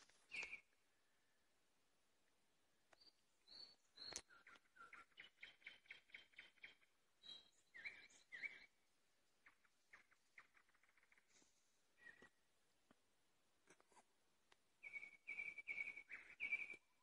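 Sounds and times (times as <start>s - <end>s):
nightingale singing: 0.0s - 1.4s, 2.9s - 12.4s, 14.8s - 17.0s.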